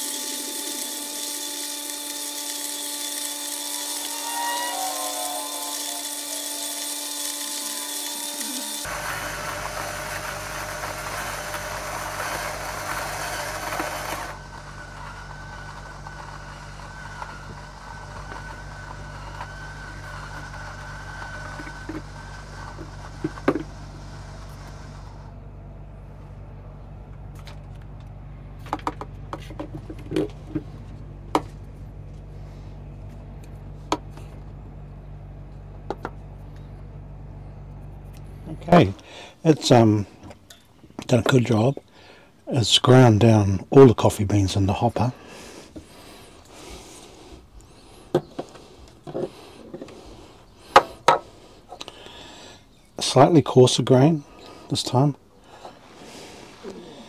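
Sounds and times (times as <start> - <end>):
electric coffee grinders grinding: 0.0 - 25.4, 44.6 - 53.1
low steady hum: 8.4 - 57.0.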